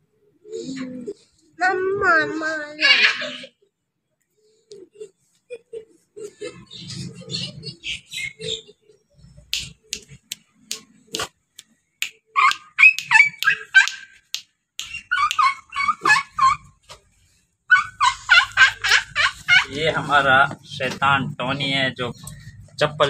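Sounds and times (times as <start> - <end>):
puppy yapping: 12.4 - 14.2, 14.8 - 16.8, 17.7 - 19.0.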